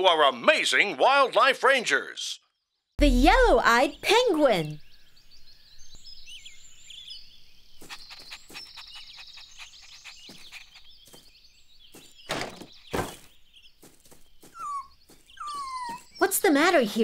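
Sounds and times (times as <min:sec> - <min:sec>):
birds chirping: 0:01.7 - 0:17.0
loud wooden knocks: 0:12.3 - 0:13.3.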